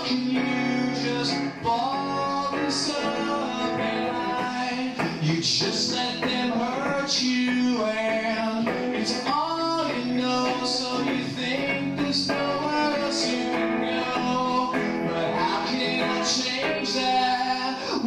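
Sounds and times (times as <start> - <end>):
electric guitar strumming: 0.0 - 18.0
man singing into a microphone: 0.0 - 18.0.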